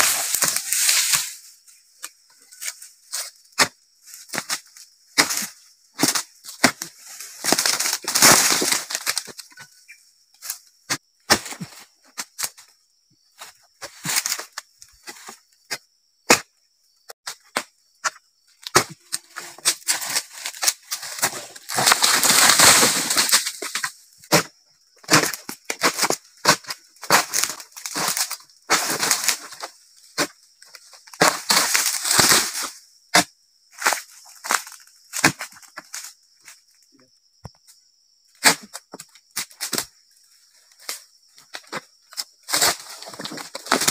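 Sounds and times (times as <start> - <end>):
rustling crash of falling fronds: 19.9 - 23.8.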